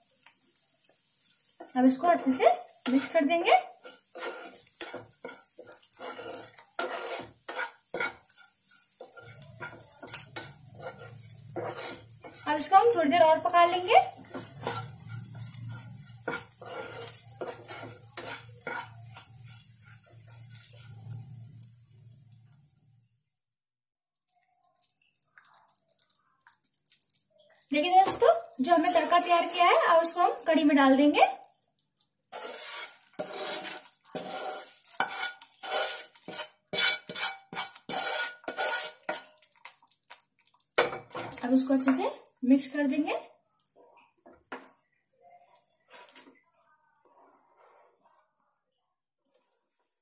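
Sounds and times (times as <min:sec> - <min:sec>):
spatula scraping frying pan: 0:01.1 - 0:21.8, 0:27.8 - 0:31.1, 0:32.2 - 0:39.9, 0:45.4 - 0:46.4, 0:47.0 - 0:48.4.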